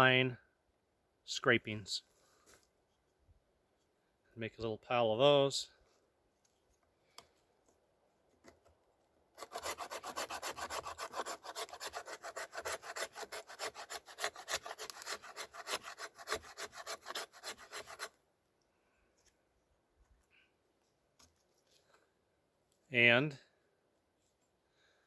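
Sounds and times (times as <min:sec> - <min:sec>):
knife spine scraping wood: 0:09.4 - 0:18.2.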